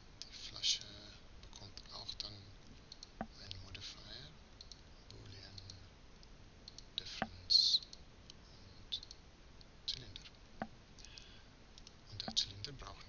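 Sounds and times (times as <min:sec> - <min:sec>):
computer mouse clicking: 0:02.9 - 0:03.6, 0:04.6 - 0:10.4, 0:11.0 - 0:12.6.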